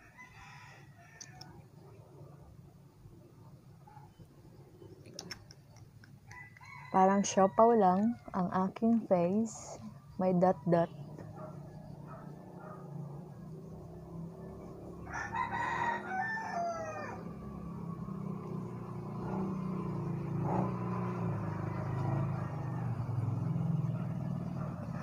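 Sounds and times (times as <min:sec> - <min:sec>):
rooster crowing: 0:00.0 - 0:01.6, 0:06.2 - 0:08.1, 0:15.0 - 0:18.3.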